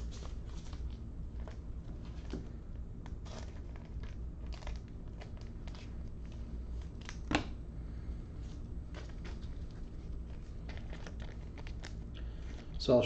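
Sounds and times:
low steady hum: 0:00.0 - 0:13.0
handling clicks and rustles: 0:08.5 - 0:12.8.

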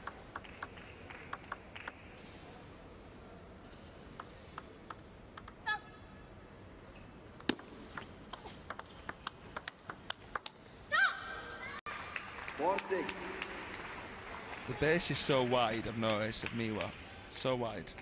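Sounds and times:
low hum of arena noise: 0:00.0 - 0:18.0
table tennis ball clicks: 0:07.4 - 0:10.6.

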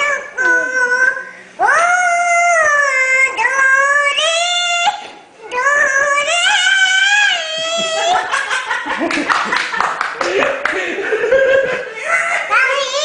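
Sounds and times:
small child singing: 0:00.0 - 0:08.2, 0:12.4 - 0:13.0.

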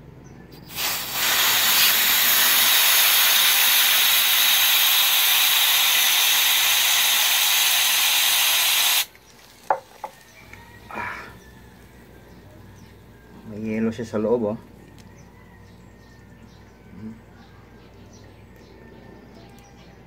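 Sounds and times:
gas canister hissing: 0:00.6 - 0:09.8.

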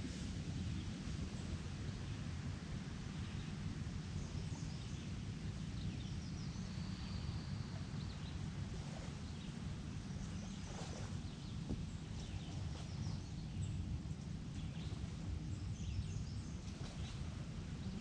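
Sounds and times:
steady low rumble: 0:00.0 - 0:18.0
faint birds chirping: 0:00.6 - 0:18.0.

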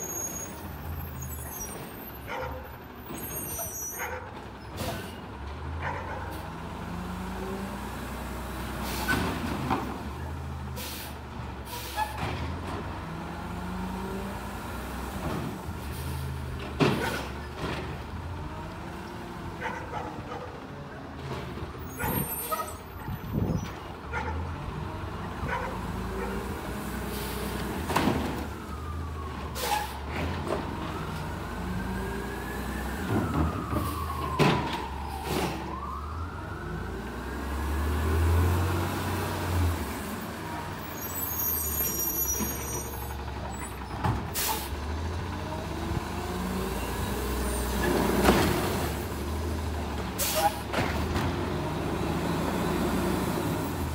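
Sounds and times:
air brake hissing: 0:10.8 - 0:12.2, 0:50.2 - 0:50.7
garbage truck engine revving: 0:36.8 - 0:53.9.

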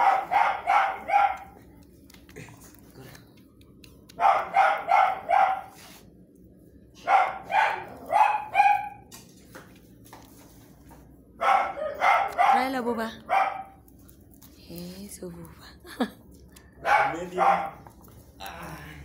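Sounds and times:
dog barking: 0:00.0 - 0:01.6, 0:04.1 - 0:05.8, 0:07.0 - 0:09.1, 0:11.4 - 0:13.8, 0:16.8 - 0:17.8.

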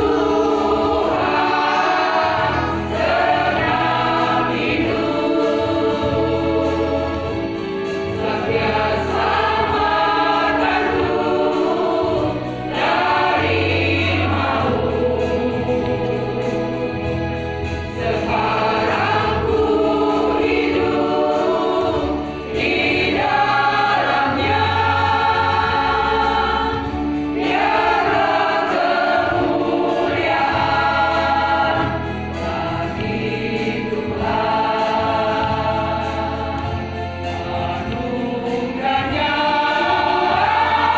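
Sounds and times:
women's choir singing: 0:00.0 - 0:40.9.

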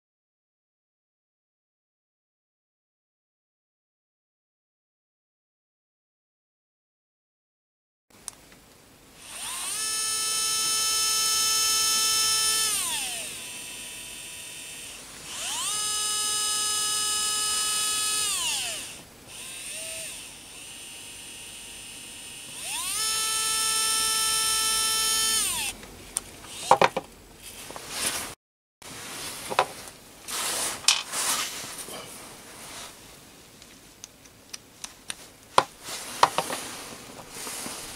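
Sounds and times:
electric screwdriver motor whining: 0:09.2 - 0:25.8, 0:26.5 - 0:27.0
screwdriver bit clicks and knocks: 0:26.5 - 0:27.1.

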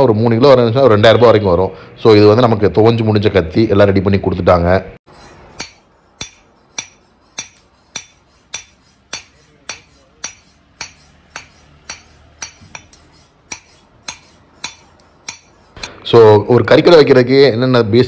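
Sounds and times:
hammer striking hot steel on anvil: 0:05.1 - 0:16.0.

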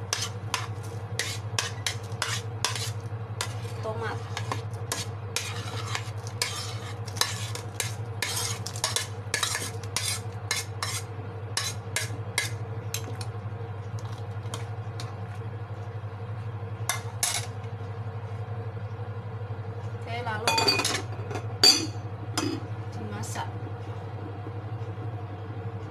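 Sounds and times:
steady low hum: 0:00.0 - 0:25.9
metal spoon scraping ceramic plate: 0:04.3 - 0:12.5.

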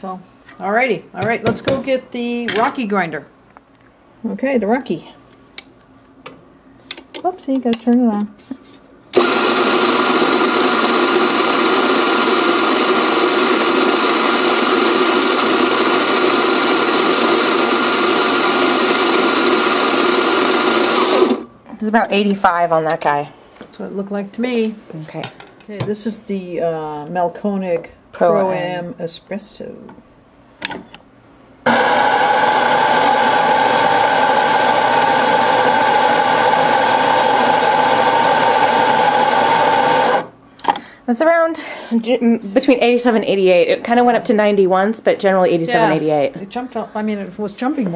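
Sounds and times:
coffee grinder whining: 0:09.2 - 0:21.5, 0:31.7 - 0:40.3.

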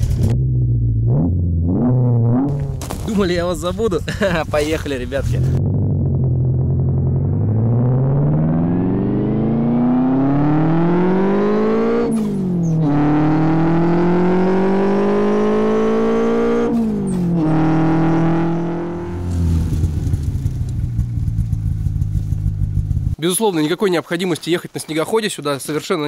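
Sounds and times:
snowmobile engine accelerating: 0:04.0 - 0:23.2.

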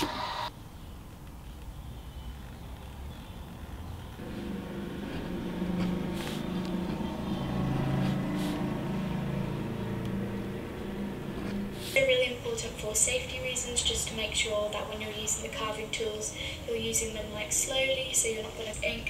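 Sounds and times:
gouge scraping linoleum: 0:04.2 - 0:08.7.

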